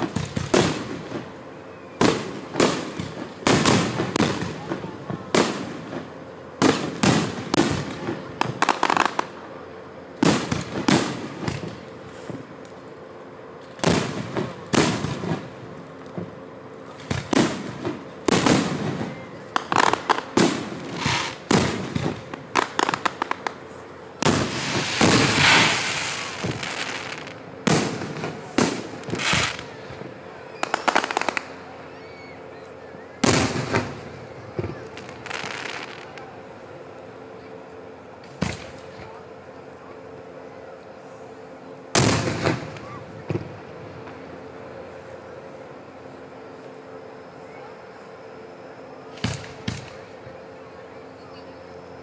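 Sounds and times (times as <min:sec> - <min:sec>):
sustained firework hiss: 0:00.0 - 0:09.6, 0:13.6 - 0:36.6
firework shells bursting: 0:17.0 - 0:23.6, 0:24.2 - 0:29.7.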